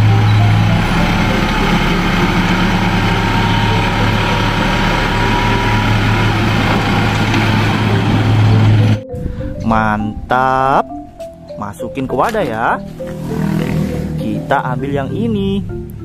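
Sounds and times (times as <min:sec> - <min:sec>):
diesel engine humming: 0:00.0 - 0:16.0.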